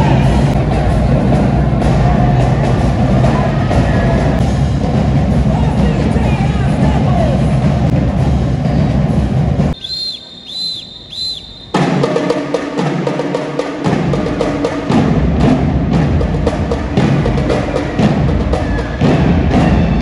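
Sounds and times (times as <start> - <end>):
drum-heavy music: 0.0 - 9.8, 11.6 - 20.0
short high chirps: 9.8 - 11.8.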